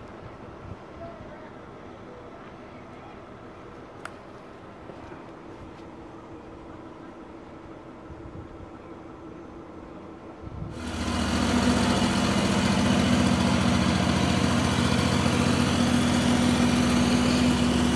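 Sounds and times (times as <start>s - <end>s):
band sawmill engine droning: 10.7s - 17.9s.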